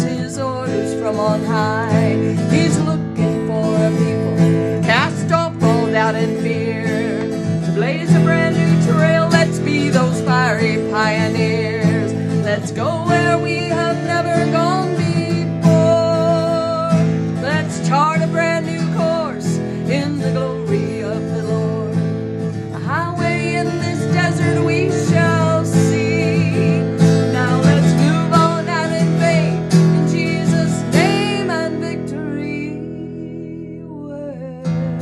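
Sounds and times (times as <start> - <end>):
acoustic guitar strumming: 0.0 - 35.0
woman singing: 0.0 - 35.0.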